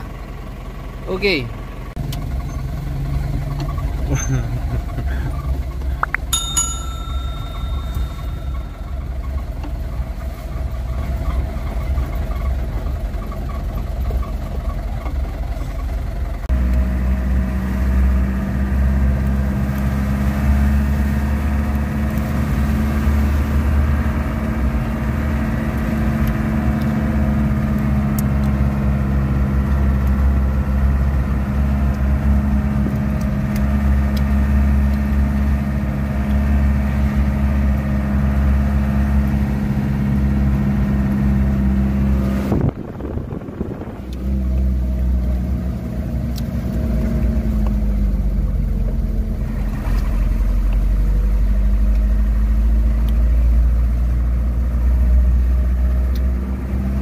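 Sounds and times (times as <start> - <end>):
truck engine running: 0.0 - 57.0
brief ringing tone: 6.2 - 9.6.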